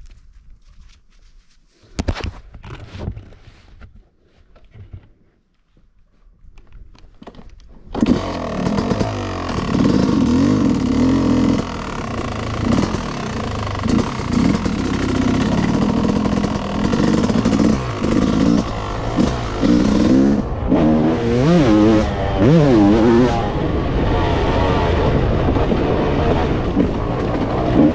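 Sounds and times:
motocross bike engine revving: 0:08.0 - 0:27.9.

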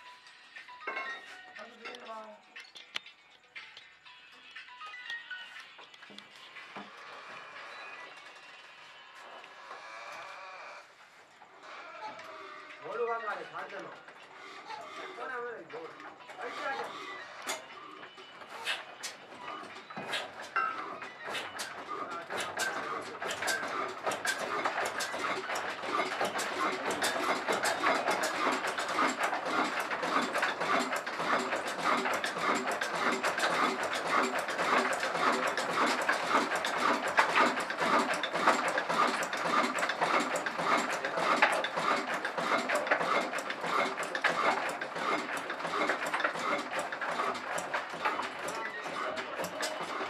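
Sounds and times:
fast mechanical clicking: 0:12.9 - 0:50.0
diesel engine running: 0:13.3 - 0:50.0.

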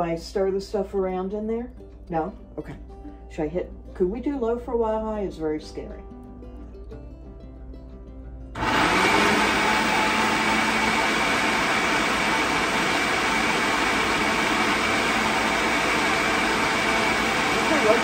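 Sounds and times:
blender motor whirring: 0:08.6 - 0:18.0.

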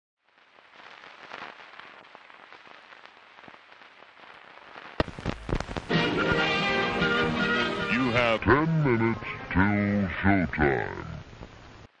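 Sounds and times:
record surface noise crackle: 0:00.2 - 0:12.0
clicks and pops: 0:05.0 - 0:05.9.

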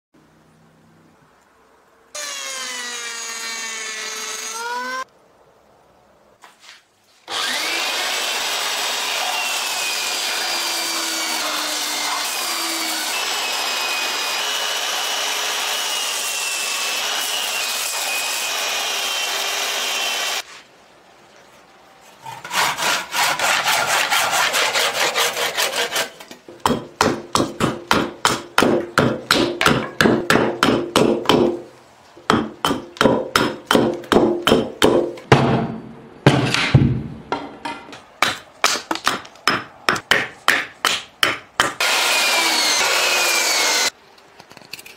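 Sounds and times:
hand-tool strokes on wood: 0:22.1 - 0:26.4
fast rasping on wood: 0:22.5 - 0:26.1
belt sander whining: 0:41.8 - 0:43.9.

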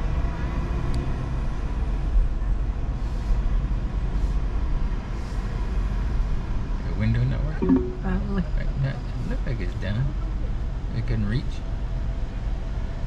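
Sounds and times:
car engine rumble inside cabin: 0:08.3 - 0:13.0.

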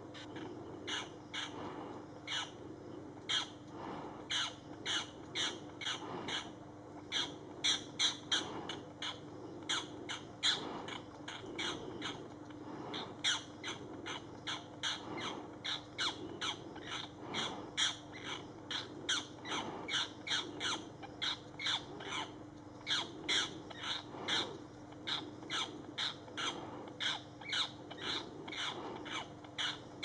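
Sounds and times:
bird giving harsh distress squawks: 0:12.9 - 0:29.9.

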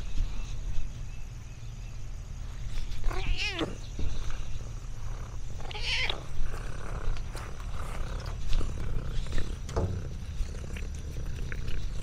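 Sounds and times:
cat meowing: 0:03.0 - 0:03.8, 0:05.6 - 0:06.3.

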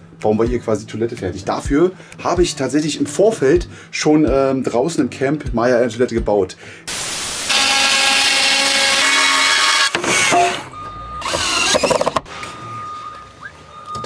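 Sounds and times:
static noise burst: 0:06.9 - 0:08.0
power drill whining: 0:07.4 - 0:12.2.

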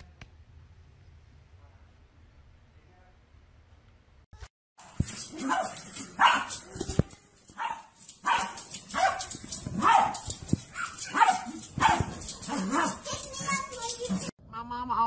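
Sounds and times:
dog barking: 0:05.2 - 0:06.7, 0:07.6 - 0:13.3.

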